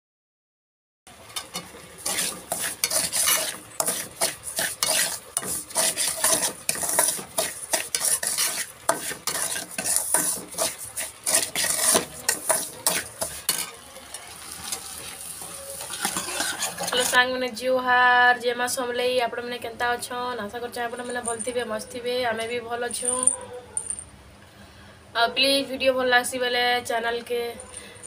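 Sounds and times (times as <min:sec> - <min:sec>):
food sizzling: 0:01.1 - 0:17.4
metal ladle scraping in pot: 0:01.3 - 0:13.8, 0:14.6 - 0:17.3.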